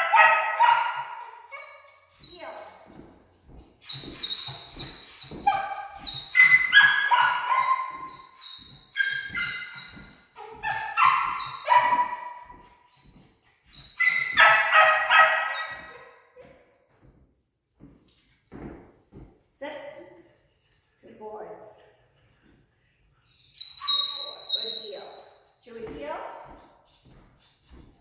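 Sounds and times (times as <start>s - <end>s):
dog yipping and whining: 0.0s - 2.7s, 3.8s - 16.9s, 23.2s - 25.0s.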